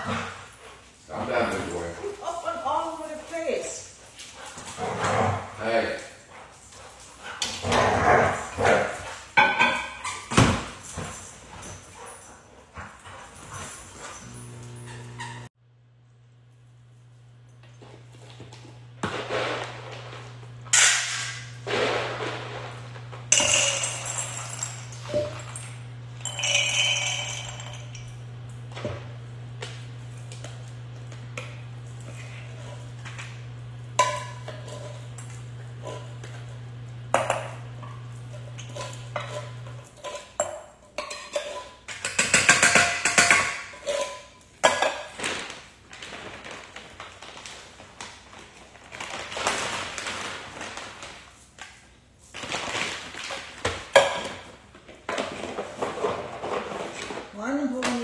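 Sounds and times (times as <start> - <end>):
metal bowls clinking and scraping: 7.5 - 12.3, 13.1 - 15.5, 17.6 - 45.3.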